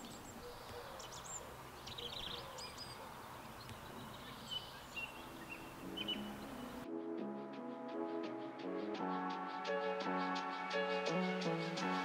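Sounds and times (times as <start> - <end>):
small birds chirping: 0.0 - 6.8
faint outdoor ambience: 0.0 - 12.0.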